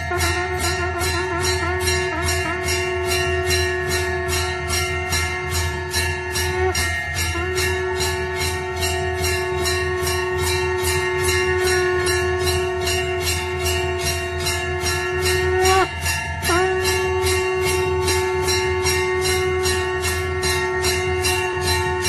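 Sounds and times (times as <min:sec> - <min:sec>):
jingling beat: 0:00.0 - 0:22.0
long held melodic note: 0:00.0 - 0:22.0.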